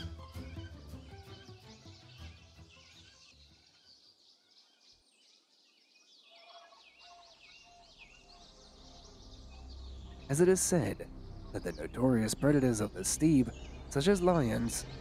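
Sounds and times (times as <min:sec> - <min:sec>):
birds chirping: 0:00.0 - 0:15.0
low background sound: 0:08.2 - 0:15.0.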